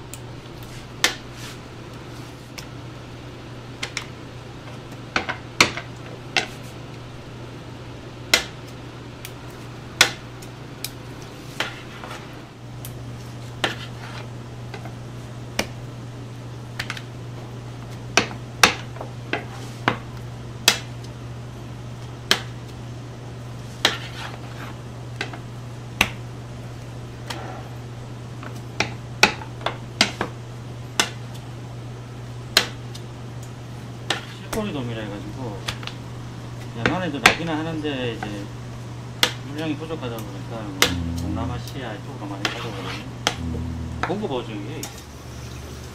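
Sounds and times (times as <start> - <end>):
steady low hum: 40.3 - 45.9.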